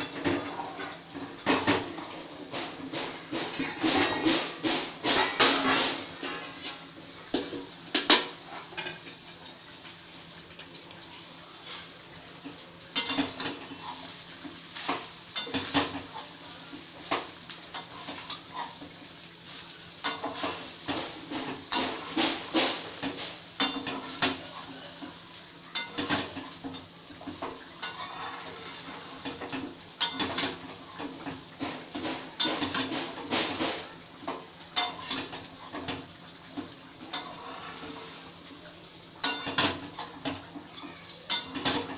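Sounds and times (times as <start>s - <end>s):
steel spatula scraping a pan: 2.7s - 9.4s, 13.0s - 16.4s, 17.0s - 33.9s, 34.8s - 36.0s, 37.0s - 38.4s, 41.3s - 41.9s.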